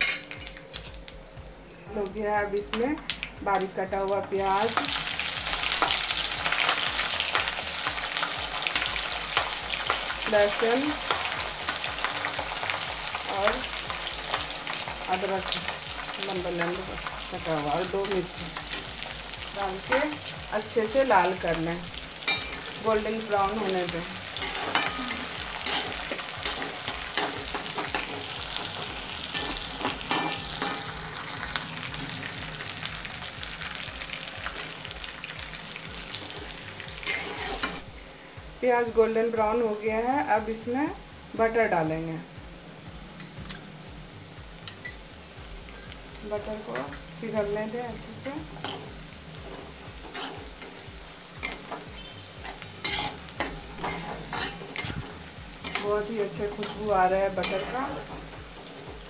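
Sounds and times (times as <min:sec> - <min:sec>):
onions sizzling in oil: 0:00.0 - 0:59.0
spatula scraping the pan: 0:24.4 - 0:30.9, 0:37.0 - 0:37.8, 0:52.4 - 0:55.8.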